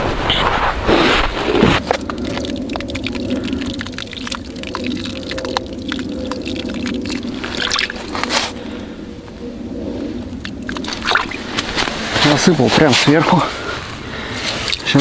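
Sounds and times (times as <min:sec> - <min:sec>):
steady low noise: 0:00.0 - 0:15.0
grains pattering on water and ice: 0:01.4 - 0:08.6, 0:14.5 - 0:15.0.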